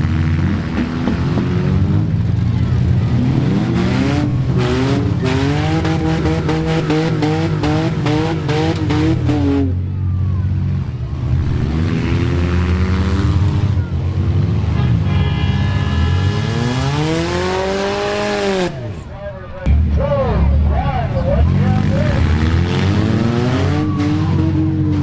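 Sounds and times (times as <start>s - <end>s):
engine revving in bursts: 0.0s - 9.8s, 15.6s - 18.8s, 21.5s - 25.0s
engine revving up: 0.0s - 10.0s, 10.6s - 14.8s, 15.5s - 20.0s, 21.2s - 25.0s
car engines running loudly: 0.0s - 25.0s.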